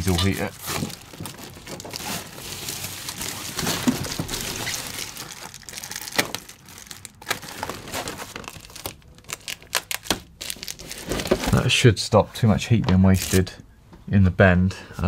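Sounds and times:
foil insulation crinkling: 0.0s - 11.6s.

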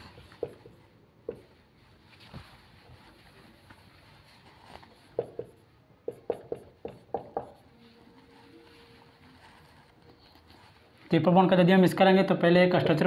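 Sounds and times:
marker tapping on whiteboard: 0.2s - 1.6s, 5.0s - 7.7s.

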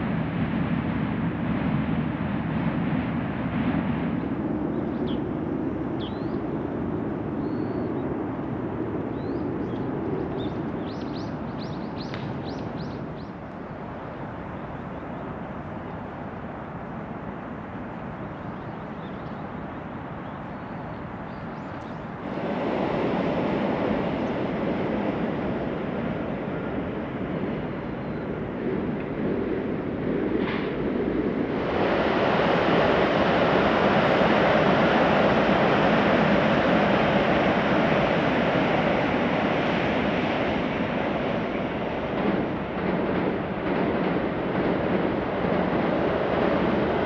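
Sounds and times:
train rumbling past: 21.9s - 47.0s.

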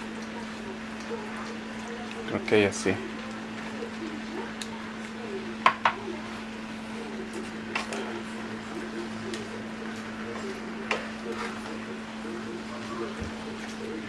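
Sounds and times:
steady low hum: 0.0s - 14.0s
spoon tapping a frying pan: 5.6s - 6.0s.

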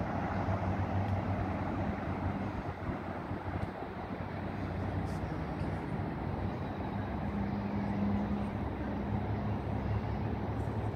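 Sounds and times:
outdoor background rumble: 0.0s - 10.9s.

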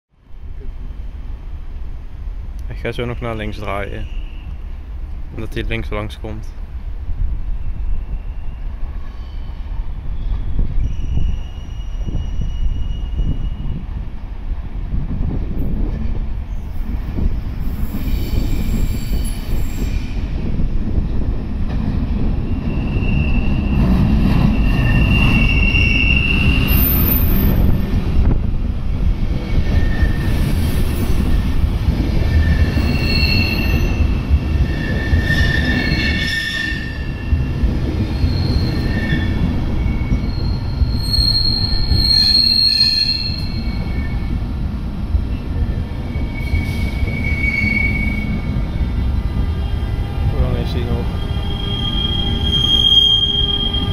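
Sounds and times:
train wheels rumbling on rails: 0.4s - 53.9s
high-pitched wheel squeals: 10.2s - 13.8s, 17.8s - 20.2s, 22.5s - 23.8s, 24.4s - 27.7s, 32.4s - 37.4s, 38.1s - 44.3s, 46.1s - 48.5s, 51.2s - 53.9s.

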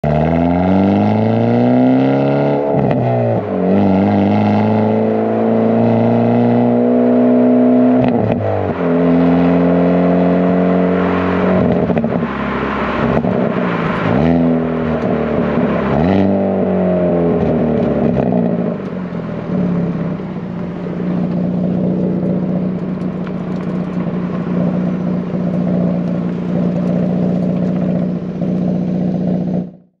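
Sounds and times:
car engine revving: 0.0s - 30.0s
exhaust cracks: 7.9s - 30.0s
car engine idling: 10.8s - 30.0s.

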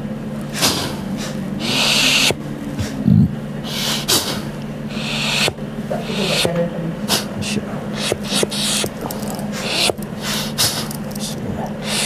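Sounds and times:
short low snort: 0.5s - 5.6s
person breathing hard: 0.5s - 12.0s.

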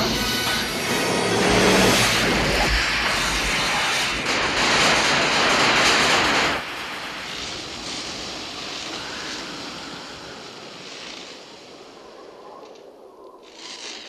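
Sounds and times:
loud rushing blast: 0.0s - 6.7s.

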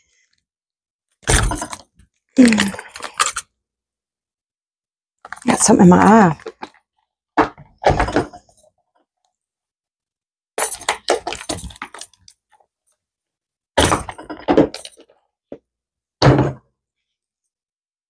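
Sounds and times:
resin tray thunk: 16.2s - 16.6s.

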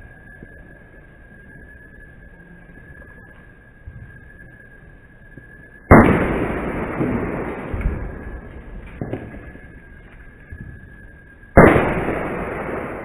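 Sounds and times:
firework pops: 5.9s - 9.7s
firework bang echoing: 5.9s - 13.0s.

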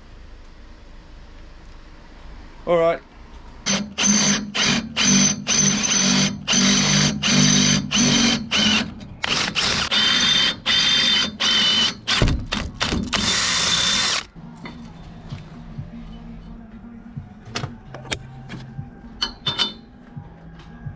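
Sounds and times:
power drill boring through steel: 3.7s - 12.2s, 12.8s - 14.3s.

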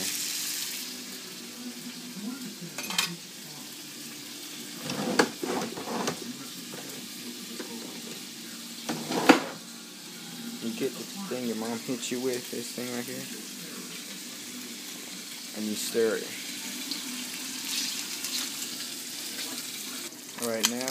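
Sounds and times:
hot dogs sizzling in oil: 0.0s - 20.9s
pan and utensils clattering: 2.8s - 3.2s, 4.8s - 9.7s.

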